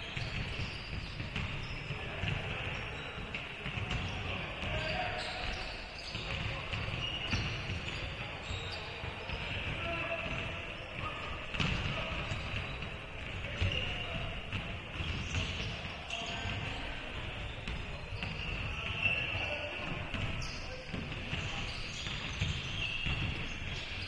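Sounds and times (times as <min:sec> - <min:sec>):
sneakers squeaking on floor: 0:00.0 - 0:24.0
basketball bouncing on hardwood: 0:11.5 - 0:13.8.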